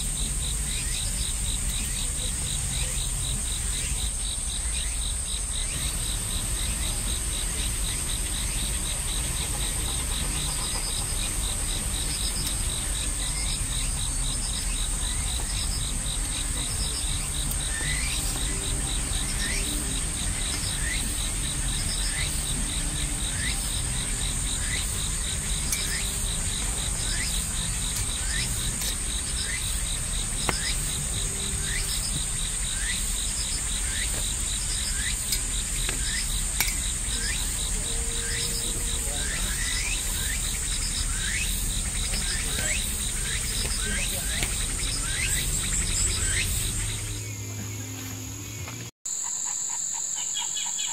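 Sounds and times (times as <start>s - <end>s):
insects chorus drone and trill: 0.0s - 50.9s
short rising insect call: 24.4s - 50.9s.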